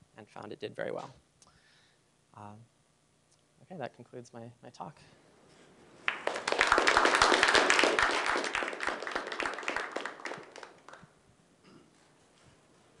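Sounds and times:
audience applauding: 0:06.0 - 0:11.1.

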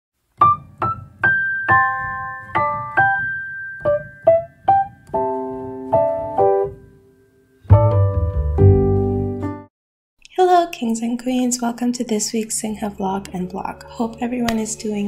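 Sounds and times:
piano notes and chords: 0:00.4 - 0:09.7.

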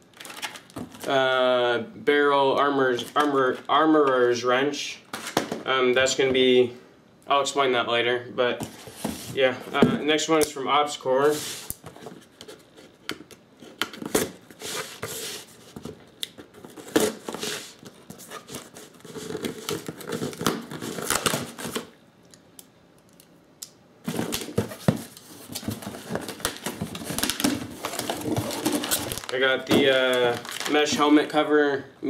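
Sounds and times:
paper crinkling: 0:24.1 - 0:31.1.

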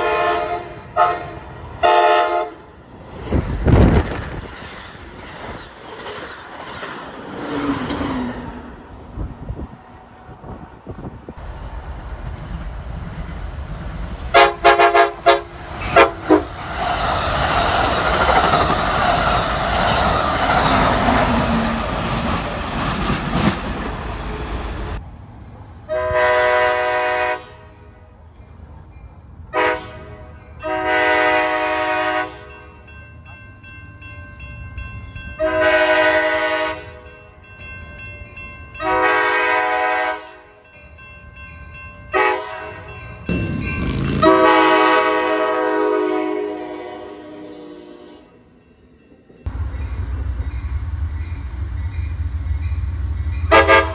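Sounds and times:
train horn blasts: 0:00.0 - 0:02.7, 0:14.3 - 0:16.6, 0:25.9 - 0:28.1, 0:29.5 - 0:32.7, 0:35.4 - 0:37.1, 0:38.8 - 0:40.6, 0:42.1 - 0:48.5, 0:53.4 - 0:53.9
train rushing past: 0:00.0 - 0:53.9.

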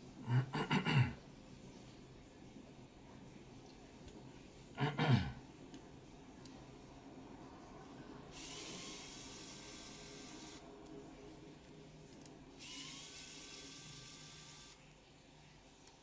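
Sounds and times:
handheld tool whirring: 0:08.3 - 0:10.6, 0:12.6 - 0:14.8.

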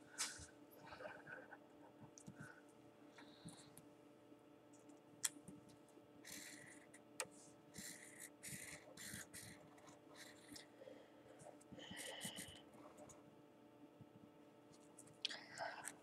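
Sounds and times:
steady low hum: 0:00.0 - 0:16.0
marker scratching on paper: 0:07.8 - 0:10.6.

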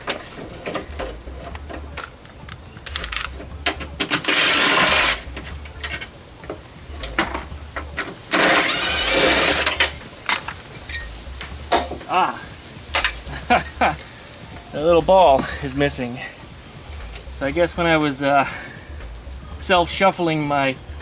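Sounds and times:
power driver running: 0:07.0 - 0:10.0.

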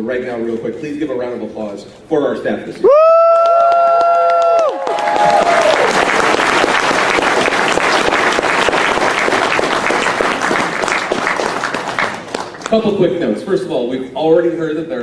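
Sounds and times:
crowd cheering and whooping: 0:02.8 - 0:08.0
audience clapping: 0:03.2 - 0:13.0.

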